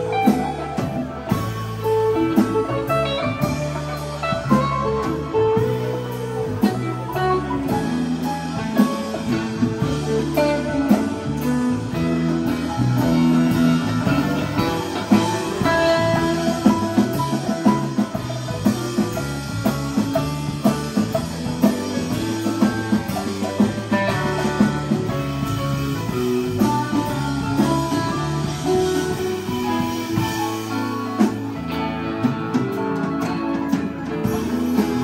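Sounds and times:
electric guitar: 0:00.0 - 0:35.0
live rock band playing: 0:00.0 - 0:35.0.

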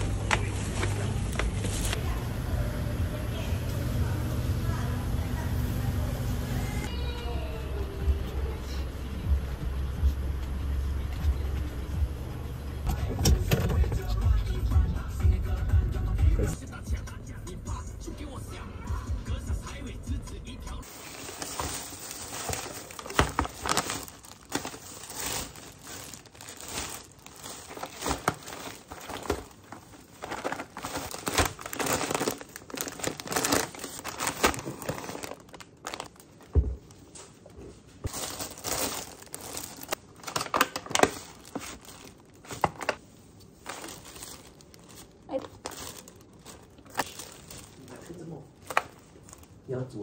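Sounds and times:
plastic bags rustling: 0:00.0 - 0:02.1, 0:20.8 - 0:50.0.

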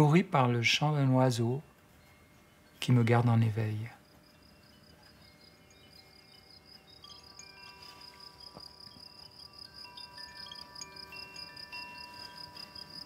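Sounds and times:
soft chime-like tones: 0:01.3 - 0:13.0
fast-pulsing insect-like trill: 0:03.9 - 0:13.0.

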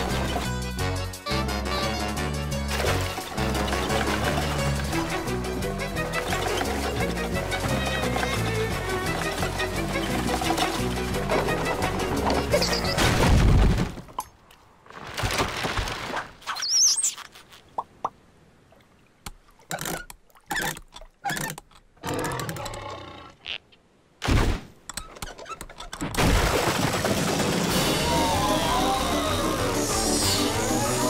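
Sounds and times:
background music: 0:00.0 - 0:13.1, 0:27.6 - 0:31.0
cartoon wooden knocks and thuds: 0:06.2 - 0:14.3, 0:24.2 - 0:27.7
brief high squeak: 0:16.5 - 0:17.3.

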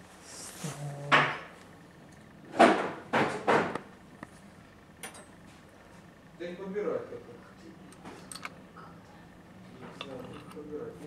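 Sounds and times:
parts knocking on workbench: 0:02.6 - 0:03.8.

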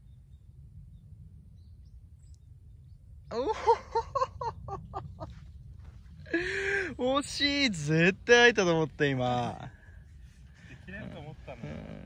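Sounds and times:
wind on microphone: 0:00.0 - 0:08.3
person crying out laughing: 0:03.3 - 0:04.5.

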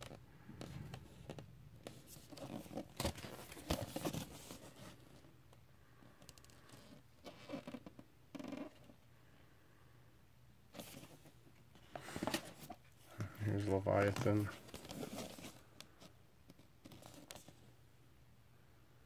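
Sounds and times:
card sleeve rustling and scraping: 0:00.0 - 0:05.3, 0:10.8 - 0:12.9, 0:13.7 - 0:17.6.

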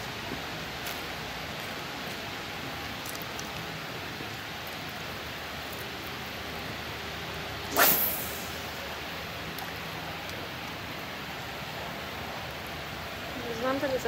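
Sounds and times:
steady background hiss: 0:00.0 - 0:14.0
fishing rod whoosh: 0:07.7 - 0:08.9
line running off reel: 0:07.7 - 0:08.9.

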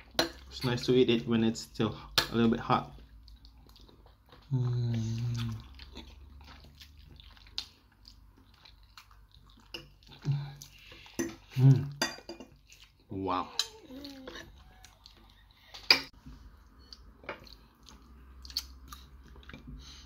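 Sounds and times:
person slurping and chewing: 0:03.0 - 0:11.9
person humming: 0:04.5 - 0:05.6
wet mouth clicks: 0:17.9 - 0:19.1.

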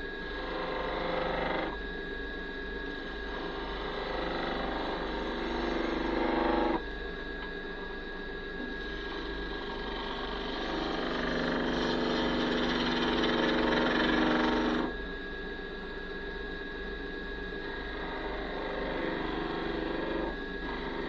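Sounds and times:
wood lathe motor hum: 0:00.0 - 0:01.8, 0:02.9 - 0:06.8, 0:08.6 - 0:15.0, 0:17.6 - 0:21.0
turning tool scraping wood: 0:09.8 - 0:14.9.

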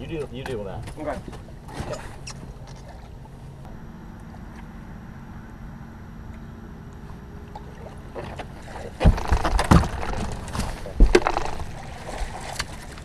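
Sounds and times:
low steady hum: 0:00.0 - 0:13.0
water splashing: 0:06.3 - 0:13.0.

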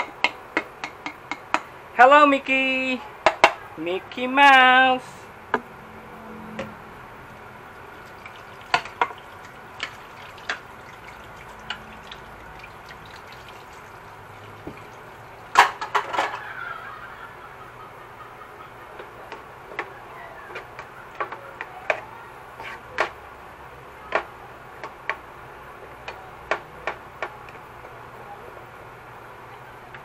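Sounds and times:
vegetables sizzling in oil: 0:07.7 - 0:15.9.

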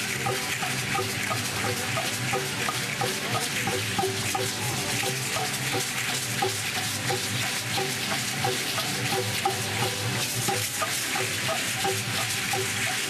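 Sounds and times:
seed-pod rattles shaking: 0:00.0 - 0:13.0.

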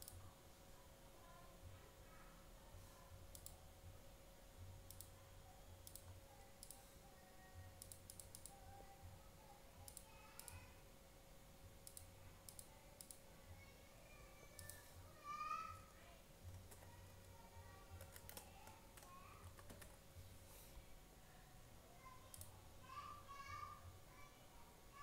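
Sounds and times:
computer mouse clicks: 0:00.0 - 0:00.2, 0:03.3 - 0:03.6, 0:04.9 - 0:05.2, 0:05.8 - 0:06.8, 0:07.8 - 0:08.6, 0:09.8 - 0:10.6, 0:11.8 - 0:13.2, 0:14.5 - 0:14.8, 0:16.5 - 0:20.0, 0:22.3 - 0:22.5
low steady hum: 0:00.0 - 0:25.0.

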